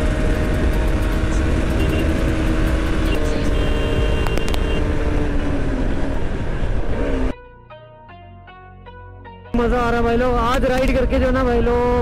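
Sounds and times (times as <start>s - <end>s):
heavy wind noise: 0.0s - 7.3s
motorcycle engine running: 0.0s - 7.3s.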